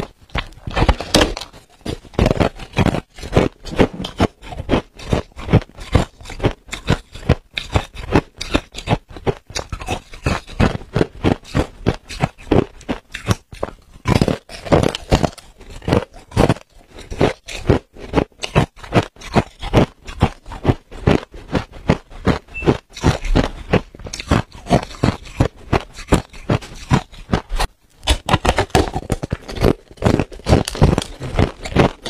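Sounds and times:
ice crunching being chewed: 0:00.0 - 0:32.0.

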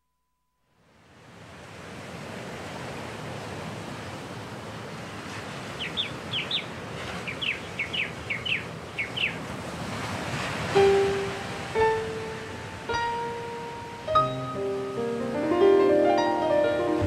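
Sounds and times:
bird chirping: 0:05.8 - 0:09.4.

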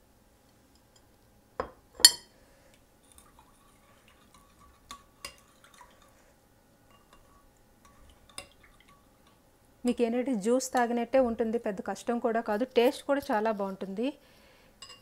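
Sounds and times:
spoon clinking on ceramic bowl: 0:14.8 - 0:15.0.

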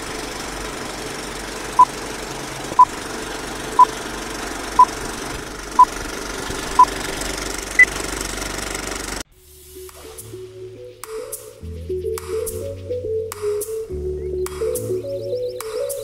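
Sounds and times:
film projector clattering: 0:00.0 - 0:09.2.

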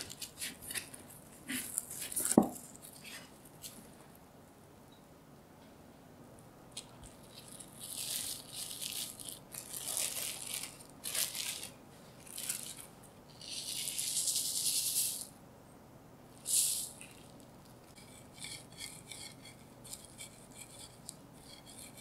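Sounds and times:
cling film crinkling: 0:06.7 - 0:14.6
sugar pouring hiss: 0:16.4 - 0:17.2.

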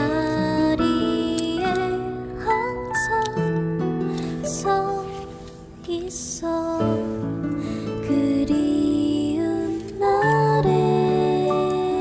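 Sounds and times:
slow gentle song: 0:00.0 - 0:12.0.

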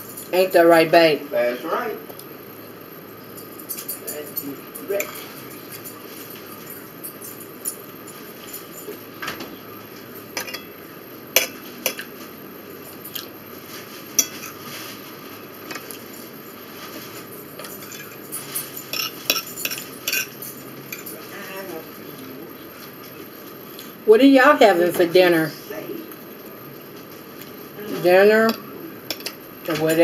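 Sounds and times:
fork clinking on plate: 0:03.4 - 0:06.0, 0:17.6 - 0:21.2.

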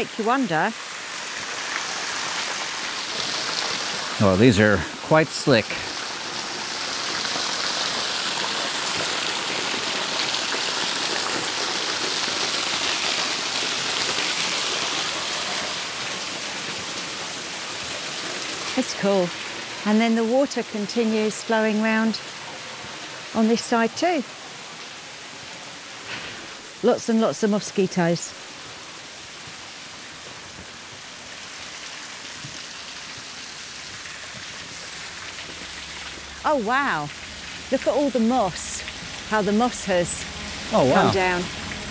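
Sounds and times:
waterfall pouring and splashing: 0:00.0 - 0:41.9.

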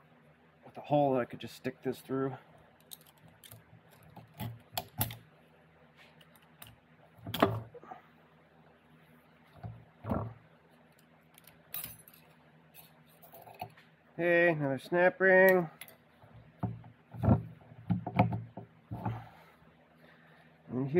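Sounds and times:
metal parts clinking: 0:02.8 - 0:05.2, 0:10.9 - 0:13.8.

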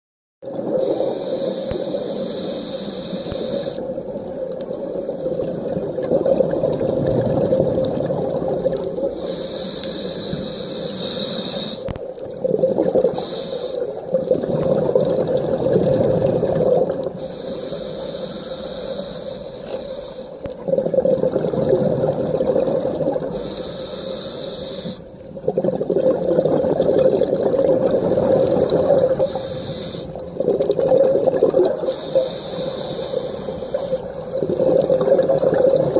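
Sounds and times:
exhaled bubbles gurgling underwater: 0:00.4 - 0:35.9
regulator inhale hiss: 0:00.8 - 0:04.0, 0:09.0 - 0:12.0, 0:13.1 - 0:14.0, 0:17.2 - 0:20.4, 0:23.3 - 0:25.2, 0:28.0 - 0:30.3, 0:31.8 - 0:34.2.

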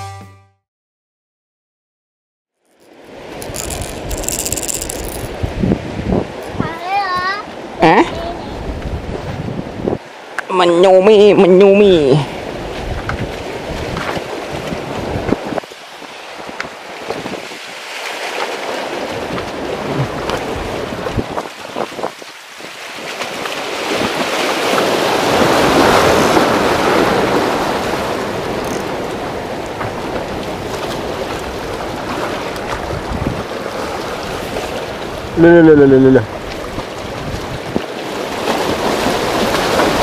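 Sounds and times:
sea surf on concrete blocks: 0:02.7 - 0:40.0
wind buffeting microphone: 0:05.3 - 0:10.2, 0:12.3 - 0:15.7, 0:19.0 - 0:22.3, 0:23.4 - 0:35.4, 0:36.2 - 0:40.0.

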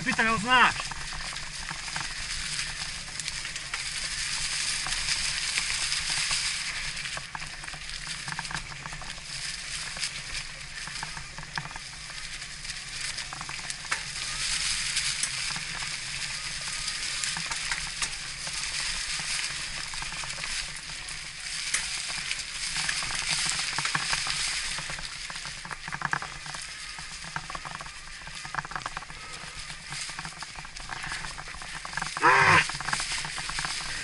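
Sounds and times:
bike tyres rolling on gravel: 0:00.0 - 0:34.0.

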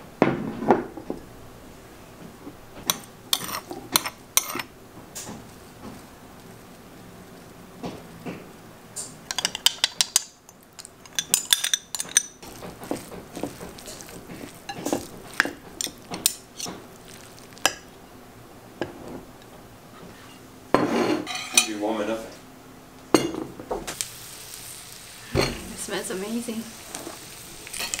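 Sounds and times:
metal spoon clinking on ceramic bowl: 0:09.3 - 0:10.2, 0:10.8 - 0:12.4.

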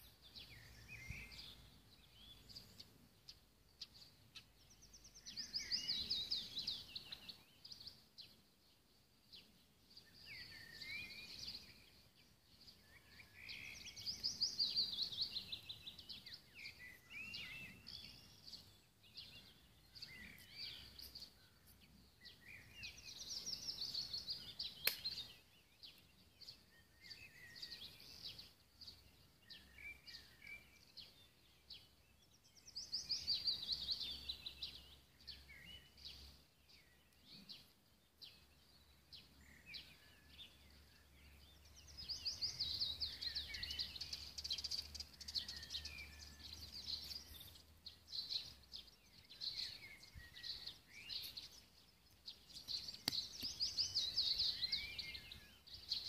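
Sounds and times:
bird trilling song: 0:00.0 - 0:08.4, 0:09.3 - 0:56.0
scattered bird chirps: 0:12.6 - 0:31.2, 0:39.3 - 0:56.0
sharp click: 0:24.8 - 0:25.2.

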